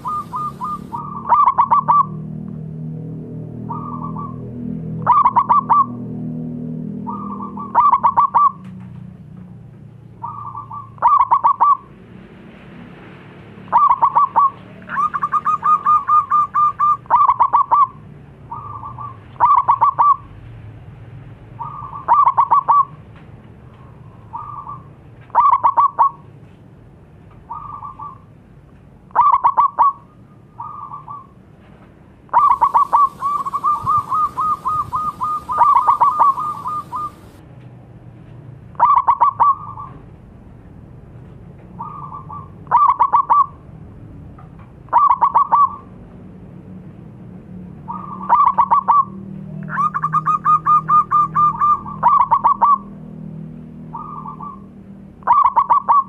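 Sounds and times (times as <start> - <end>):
dove cooing: 0.0 - 2.2, 7.1 - 8.6, 10.2 - 11.8, 13.7 - 20.2, 25.4 - 26.2, 32.4 - 37.4, 41.8 - 43.5, 44.9 - 45.9, 47.9 - 52.9, 55.3 - 56.0.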